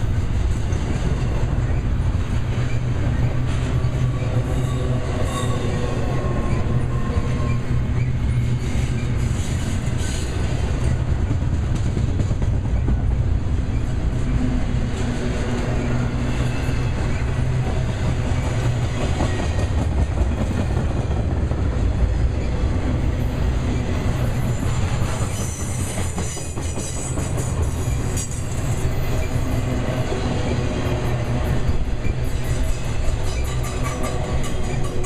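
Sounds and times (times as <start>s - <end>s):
train wheels rumbling on rail: 0.0s - 35.0s
wheels clicking over rail joints: 31.9s - 35.0s.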